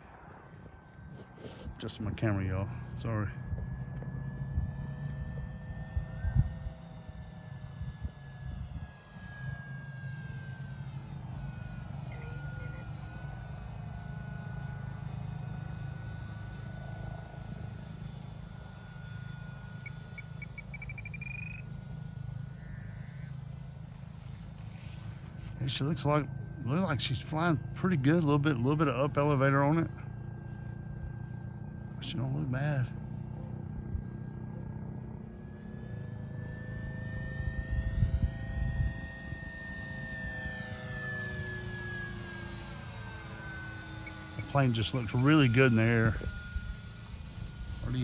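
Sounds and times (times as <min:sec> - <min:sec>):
model plane high whine: 0:00.0 - 0:48.0
wind rumble on microphone: 0:04.5 - 0:06.8, 0:37.6 - 0:39.3
chirping call: 0:19.8 - 0:21.8.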